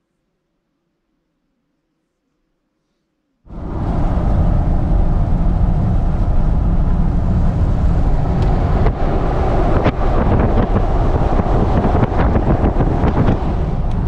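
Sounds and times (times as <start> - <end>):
road noise low rumble: 3.5 - 14.0
wind buffeting microphone: 3.5 - 14.0.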